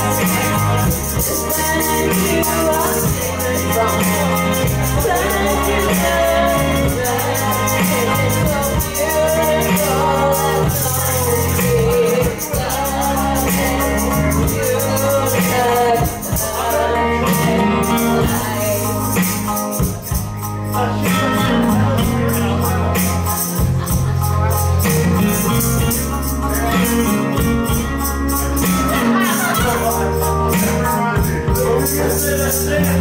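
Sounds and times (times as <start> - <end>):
woman singing karaoke: 0.0 - 20.2
backing track with steady beat: 0.0 - 33.0.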